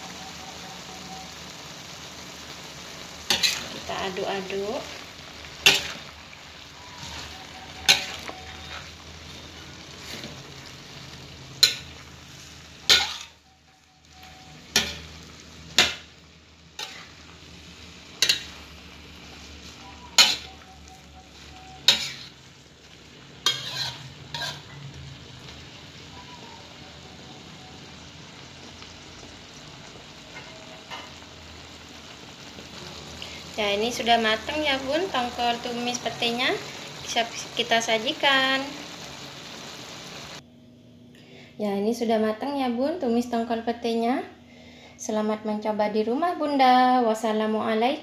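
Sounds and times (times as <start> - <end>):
food sizzling: 0.0 - 40.4
spatula scraping a wok: 3.2 - 25.6.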